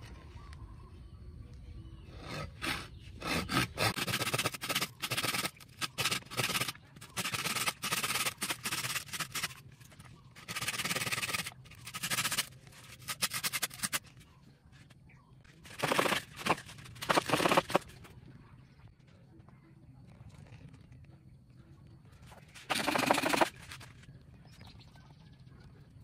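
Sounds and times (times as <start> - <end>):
hand saw cutting coconut: 2.2 - 9.6, 10.4 - 14.0, 15.7 - 17.8, 22.7 - 23.5.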